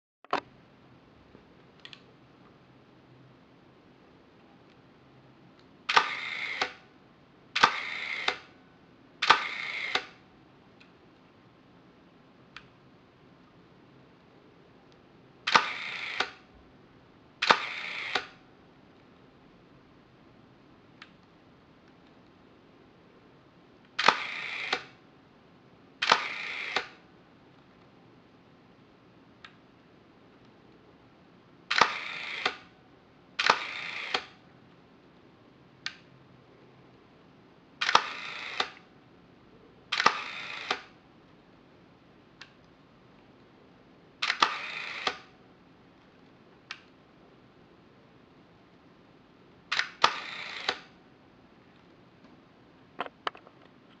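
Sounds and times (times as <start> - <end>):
camera shutter clicking and rasping: 5.9 - 6.8, 7.6 - 8.5, 9.2 - 10.2, 15.5 - 16.4, 17.4 - 18.4, 24.0 - 25.0, 26.0 - 27.0, 31.7 - 32.7, 33.4 - 34.4, 37.8 - 38.9, 39.9 - 41.0, 44.2 - 45.3, 49.7 - 51.0.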